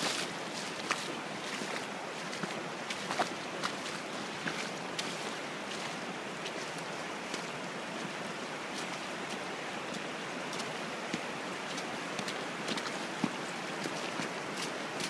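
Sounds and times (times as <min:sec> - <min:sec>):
splashes from wading: 0:00.0 - 0:06.7
river rushing over rocks: 0:00.0 - 0:15.0.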